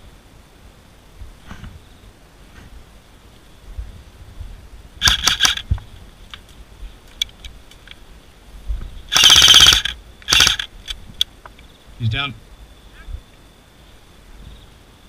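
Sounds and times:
airsoft rifle full-auto bursts: 5.0 - 5.7, 9.1 - 10.7.

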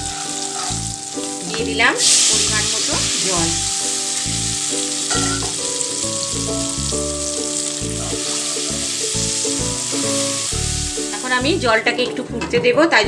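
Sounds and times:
spices sizzling in hot oil: 0.0 - 11.9
background music with held notes: 0.0 - 13.0.

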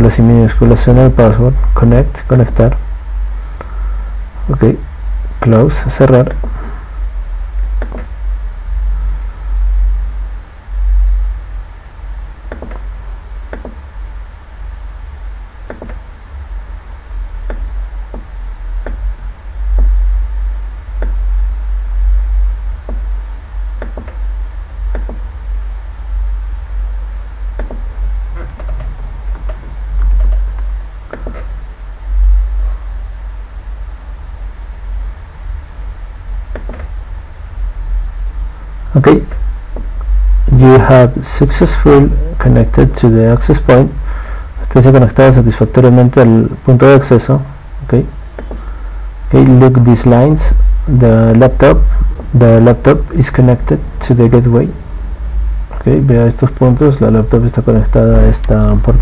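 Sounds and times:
steady low rumble: 0.0 - 59.0
computer mouse and keyboard clicks: 27.6 - 31.5.

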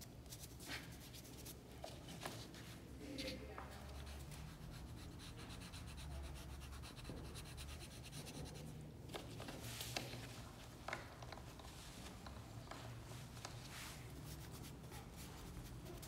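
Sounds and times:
pastel rubbing on paper: 3.8 - 8.7, 14.1 - 16.0.

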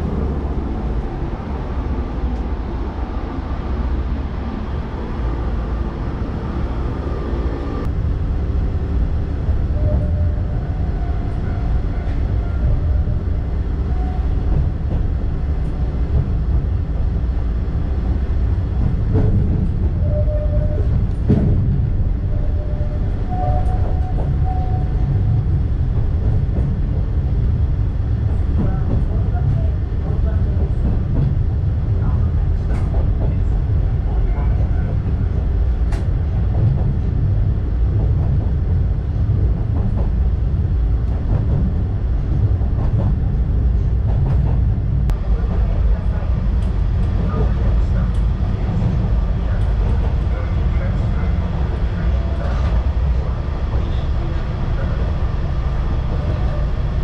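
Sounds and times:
train wheels rumbling: 0.0 - 57.0.

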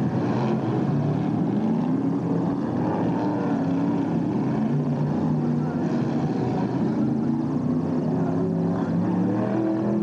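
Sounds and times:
racing car engines droning: 0.0 - 10.0.

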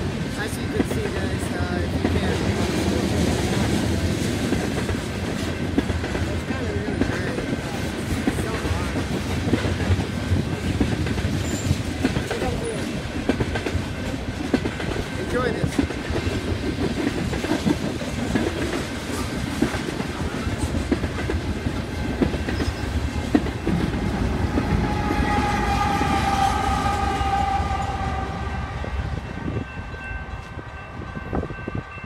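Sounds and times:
freight train wheels clattering: 0.0 - 28.5
locomotive air horn chord: 24.0 - 29.2.

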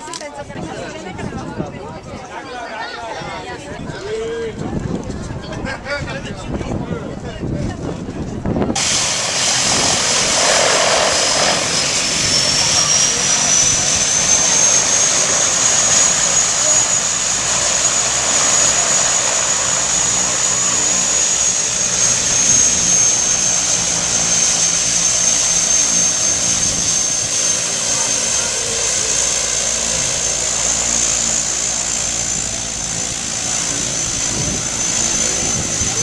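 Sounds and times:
turboprop engine whine: 3.6 - 36.0
propeller drone: 8.5 - 36.0.

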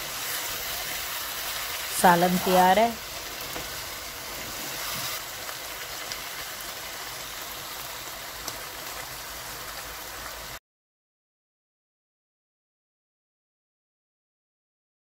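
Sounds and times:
curry sizzling in a pan: 0.0 - 10.6.

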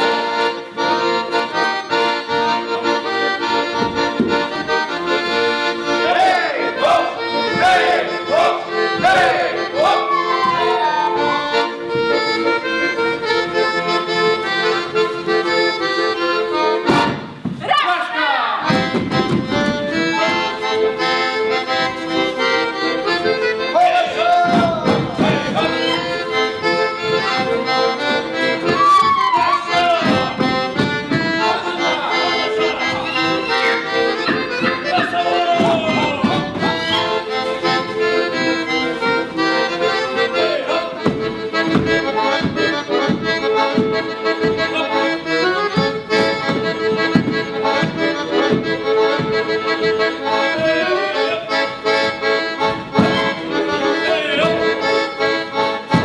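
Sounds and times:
accordion folk dance music: 0.0 - 56.0.

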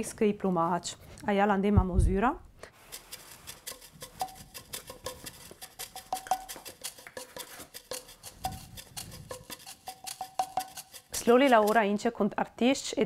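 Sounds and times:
light clinking percussion music: 4.0 - 11.8.

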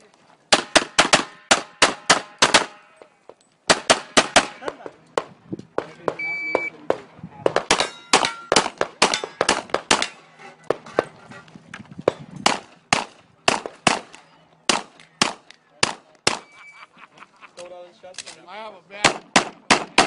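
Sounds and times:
pistol shots: 0.5 - 2.8, 7.6 - 10.2, 12.1 - 16.5, 19.0 - 20.0.

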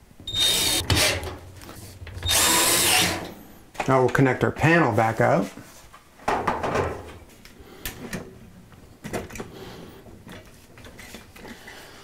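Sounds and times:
panel scraping slide: 0.3 - 3.4.

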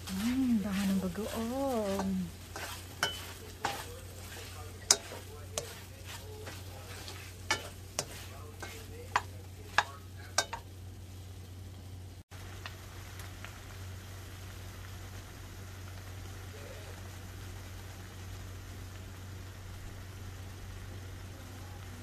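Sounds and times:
spatula scraping and clicking pan: 0.0 - 10.7
meat frying with light sizzle: 0.0 - 22.0.

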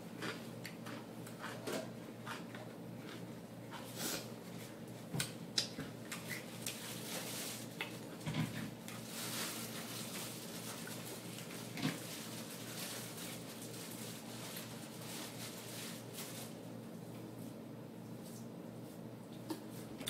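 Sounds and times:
paper napkin rustling: 6.7 - 7.8, 9.0 - 16.7.

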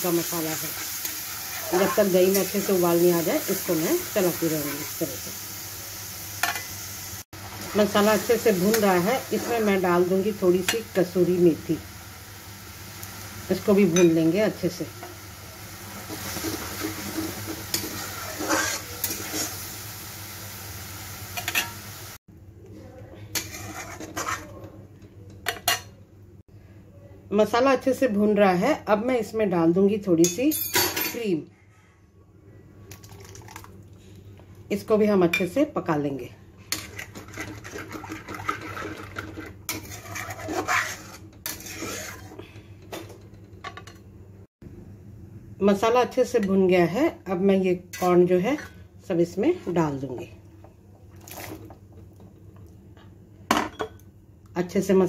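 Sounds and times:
food sizzling: 0.0 - 22.2, 36.8 - 42.4
metal utensil scraping a pan: 16.0 - 19.6, 23.3 - 24.7, 36.7 - 42.4.

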